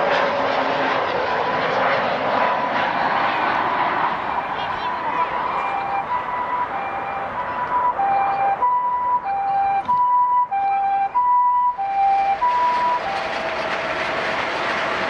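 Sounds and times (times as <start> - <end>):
rushing traffic noise: 3.4 - 15.0
two-tone ambulance siren: 4.0 - 15.0.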